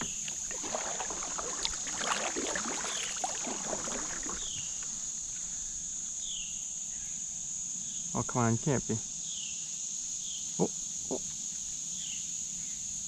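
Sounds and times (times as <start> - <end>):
paddle strokes splashing: 0.0 - 5.0
crickets chirping drone: 0.0 - 13.0.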